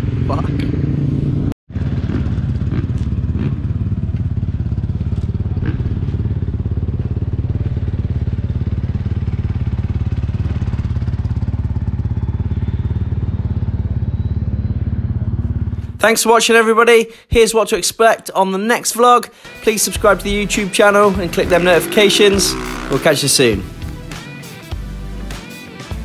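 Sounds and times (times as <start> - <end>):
motorcycle engine idling: 1.8 - 16.0, 20.0 - 24.1.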